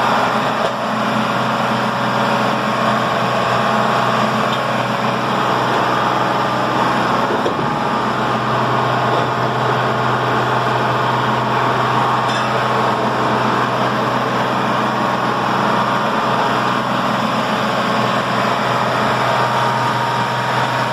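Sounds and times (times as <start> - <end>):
pump engine humming: 0.0 - 20.9.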